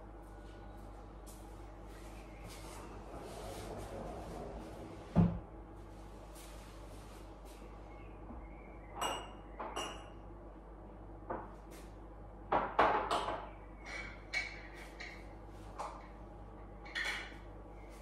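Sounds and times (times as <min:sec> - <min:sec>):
dishes and glassware clinking: 0:09.0 - 0:10.2, 0:16.8 - 0:17.4.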